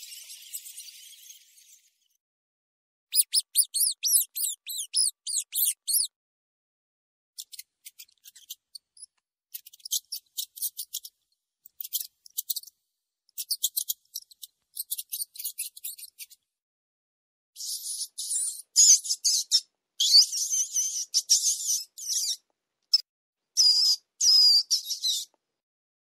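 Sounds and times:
rat squeaking: 3.1 - 6.1, 7.4 - 11.1, 13.4 - 16.4, 17.6 - 23.0, 23.6 - 25.3.

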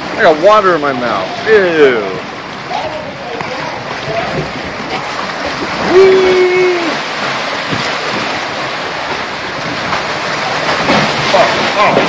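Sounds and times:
rush of flowing water: 0.0 - 12.0.

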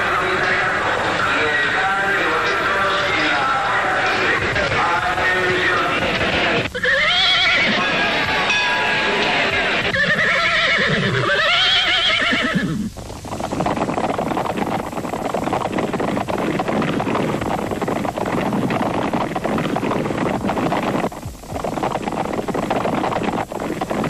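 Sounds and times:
horse whinnying: 6.7 - 8.4, 9.8 - 13.0
rumbling clatter with rapid thuds: 12.9 - 24.0.

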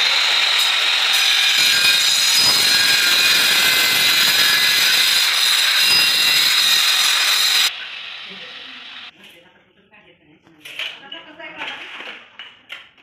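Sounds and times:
power tool high-pitched whine: 0.0 - 9.1.

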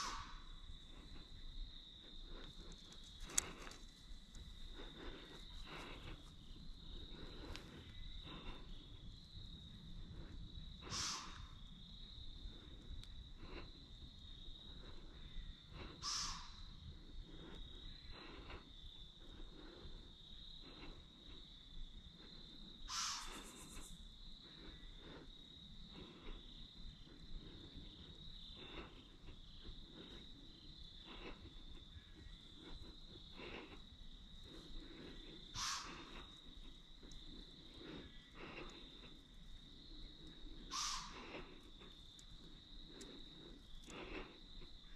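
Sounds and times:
insects chirping: 0.0 - 44.9
faint clicks: 2.4 - 4.5, 12.8 - 13.2.

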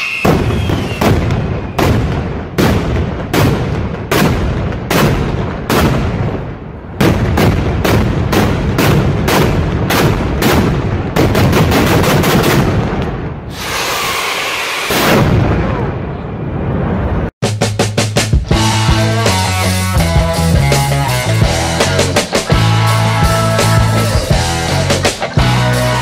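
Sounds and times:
fireworks bangs: 0.0 - 17.3
fireworks hiss: 13.5 - 15.1.

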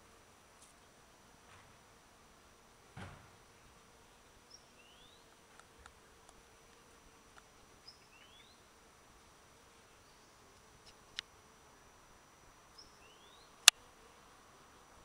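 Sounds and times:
soft knock: 3.0 - 3.4
faint ticks: 5.3 - 7.5.

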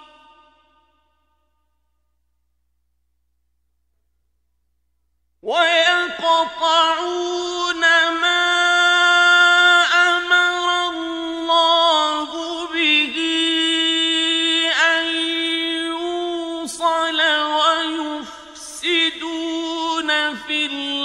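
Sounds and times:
man chanting melodic recitation: 5.4 - 21.0.

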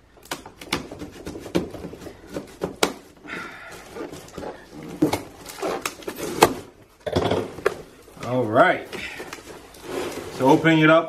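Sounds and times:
knife slitting tape on cardboard: 0.3 - 3.1, 3.8 - 6.7.

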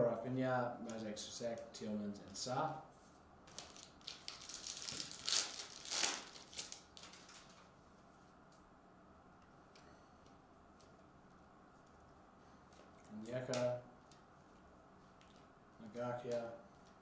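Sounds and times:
foil wrapper tearing and crinkling: 3.5 - 7.7.

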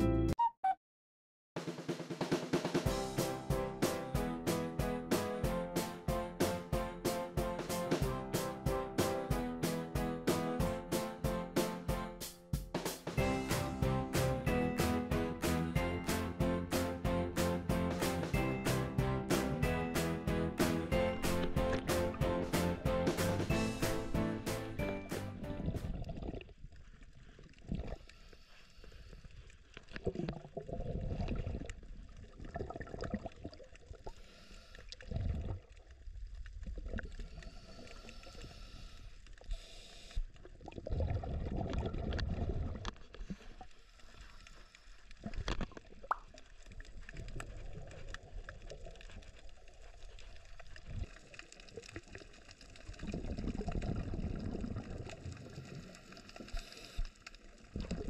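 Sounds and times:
underwater water noise: 20.9 - 58.0
muffled underwater regulator bubbles: 25.4 - 26.8, 29.9 - 34.2, 35.0 - 37.6, 40.4 - 43.5, 50.8 - 56.8, 57.5 - 58.0.

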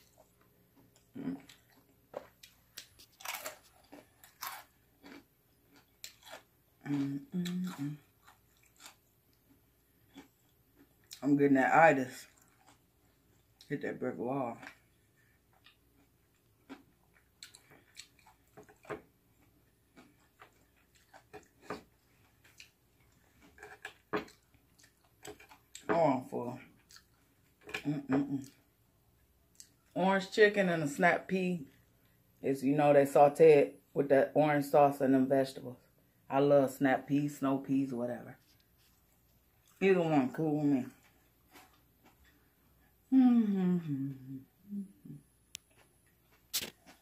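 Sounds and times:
crispy crunches of chewing: 0.0 - 11.2, 12.1 - 13.7, 14.6 - 25.9, 26.7 - 28.6, 40.9 - 42.4, 45.6 - 47.0.

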